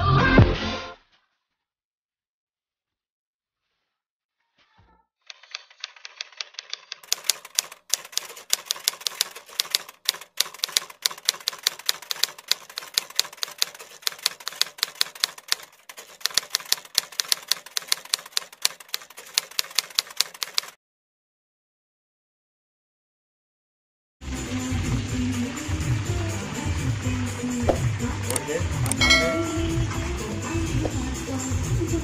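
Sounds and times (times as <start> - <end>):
typewriter keystroke clicks: 5.3 - 20.8, 28.3 - 29.0.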